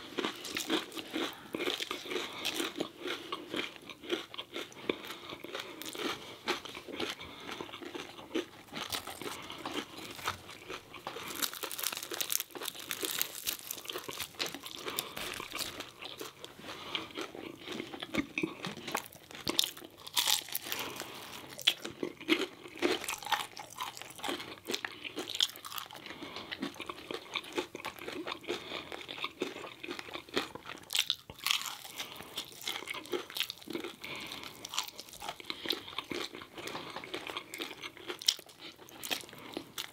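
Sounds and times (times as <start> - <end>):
crunching fried food: 0.0 - 39.9.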